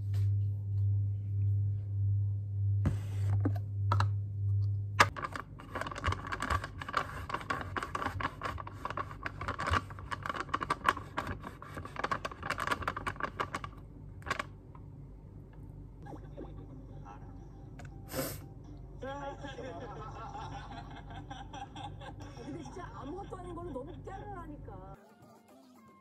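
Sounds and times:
low hum: 0:00.0 - 0:10.6, 0:12.8 - 0:25.0
fast laptop keyboard typing: 0:05.1 - 0:14.5.

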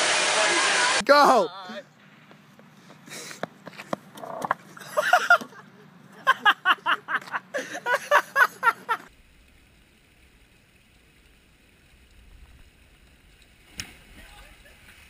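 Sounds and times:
faint low rumble and hiss: 0:01.8 - 0:15.0
people laughing hard: 0:04.8 - 0:09.1.

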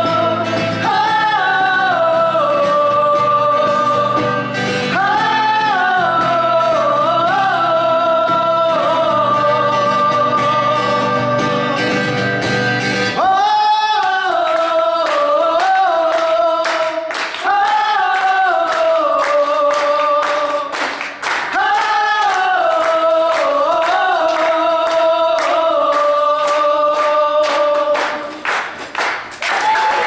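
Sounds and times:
people singing in harmony: 0:00.0 - 0:28.4
rhythmic hand claps: 0:13.9 - 0:30.0.

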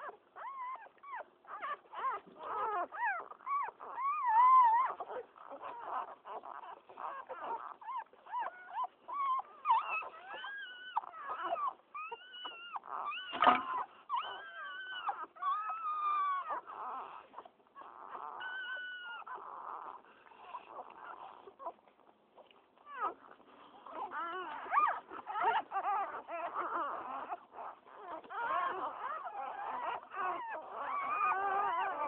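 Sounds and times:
puppies squealing and whimpering: 0:00.0 - 0:32.0
brief bump: 0:13.3 - 0:13.8.

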